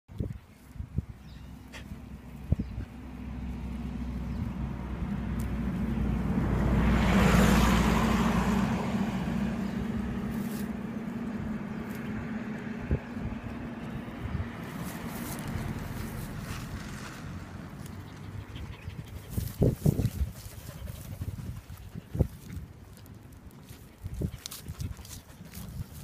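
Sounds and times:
road vehicle passing: 0:01.2 - 0:26.0
puppy chewing grass clicks: 0:05.0 - 0:06.1, 0:10.3 - 0:14.0, 0:14.6 - 0:26.0.

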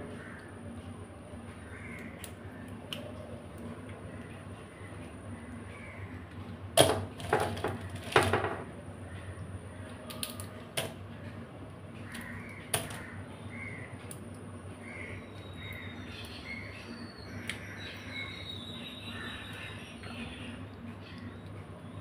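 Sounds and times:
crow cawing: 0:00.1 - 0:00.5, 0:12.0 - 0:13.9.

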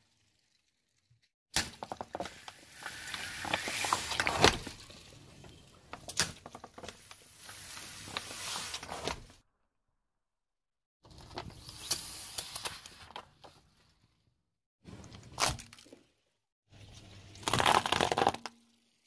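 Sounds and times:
plastic bottles crunching: 0:01.6 - 0:05.4, 0:17.3 - 0:18.6.

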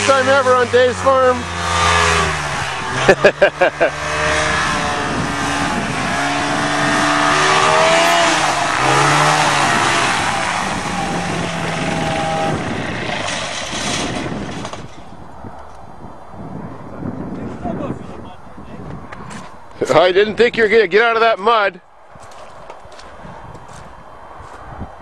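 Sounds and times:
propeller plane engine revving: 0:00.0 - 0:14.9.

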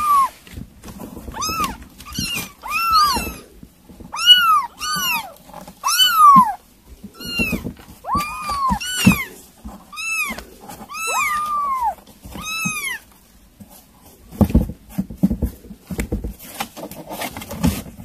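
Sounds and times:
kitten meowing: 0:00.0 - 0:00.4, 0:01.3 - 0:03.5, 0:04.1 - 0:13.1.

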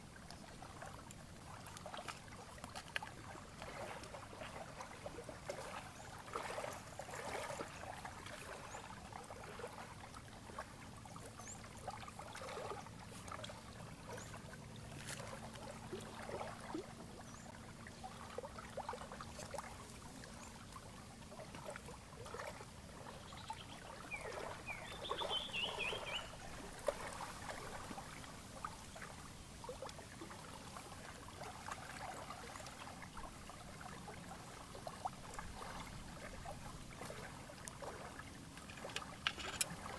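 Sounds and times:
lake water lapping: 0:00.0 - 0:39.9.

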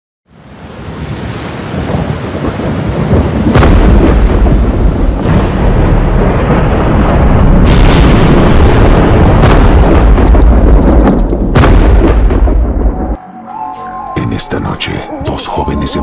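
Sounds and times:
heavy rain: 0:00.3 - 0:11.6
thunderclap cracking: 0:01.7 - 0:13.1
rolling thunder: 0:01.7 - 0:13.2.

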